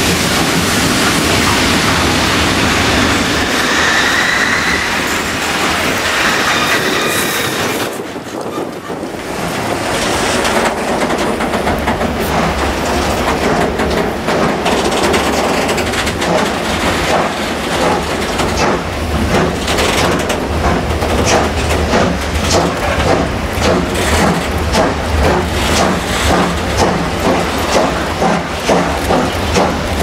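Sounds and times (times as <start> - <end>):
steam locomotive beats: 0.0 - 30.0
train rumbling on rails: 0.0 - 30.0
train wheel squeal: 2.7 - 9.0.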